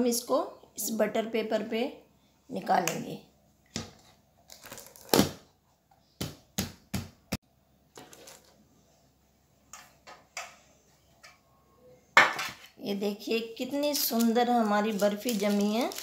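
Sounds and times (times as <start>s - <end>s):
paper rustling: 13.9s - 16.0s.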